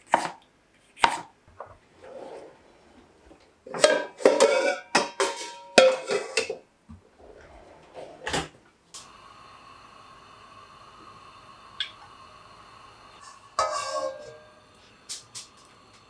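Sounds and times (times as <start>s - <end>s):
metal pans clanking: 3.7s - 6.6s, 13.2s - 14.5s
faint steady drone: 9.0s - 16.0s.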